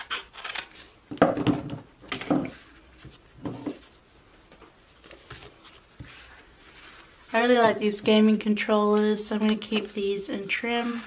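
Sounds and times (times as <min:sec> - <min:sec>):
paper sheets rustling: 0:05.0 - 0:11.0.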